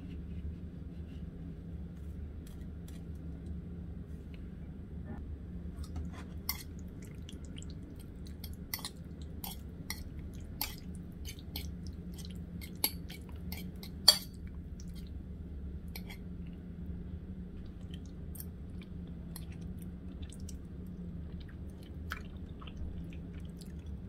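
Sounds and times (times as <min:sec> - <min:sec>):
steady low hum: 0:00.0 - 0:24.0
fork clinking against ceramic plate: 0:12.6 - 0:14.4.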